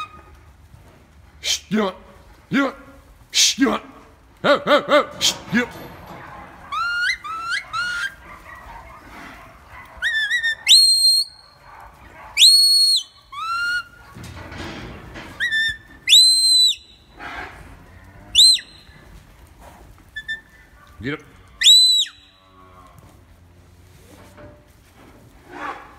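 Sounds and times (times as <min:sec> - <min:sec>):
shrill shepherd's whistles: 0:10.0 - 0:11.6, 0:12.4 - 0:13.9, 0:15.4 - 0:17.0, 0:18.4 - 0:18.8, 0:21.6 - 0:22.3.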